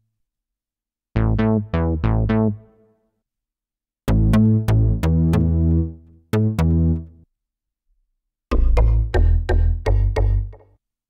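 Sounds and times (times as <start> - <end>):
plucky synth bass riff: 1.2 - 2.7, 4.1 - 7.2, 8.5 - 10.6.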